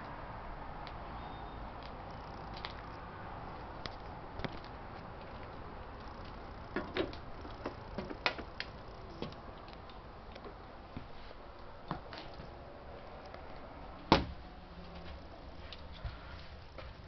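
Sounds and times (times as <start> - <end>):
footsteps on trailer floor: 14.8 - 17.0.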